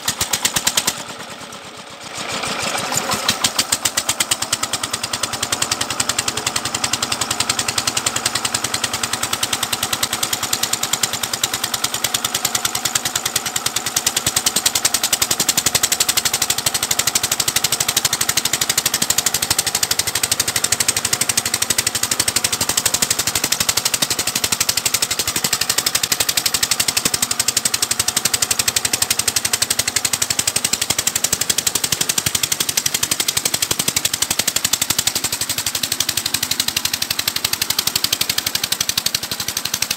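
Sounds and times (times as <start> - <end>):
diesel engine chugging: 0.0 - 39.9.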